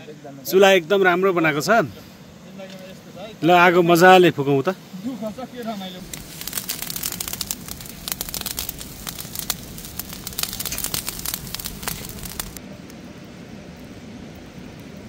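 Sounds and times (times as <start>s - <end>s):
fire hissing: 1.9s - 12.6s
campfire crackling and popping: 6.0s - 13.0s.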